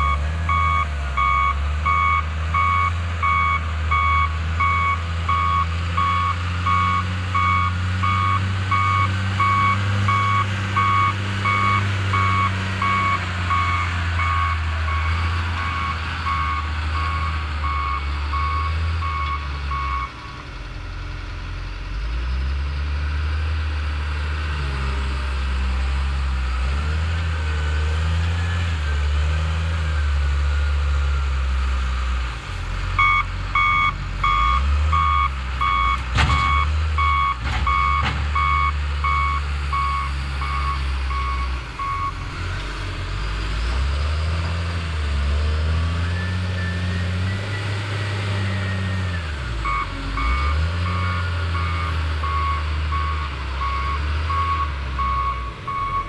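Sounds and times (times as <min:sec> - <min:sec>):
diesel engine running: 0:00.0 - 0:56.0
backup alarm beeping: 0:33.0 - 0:42.2, 0:49.6 - 0:56.0.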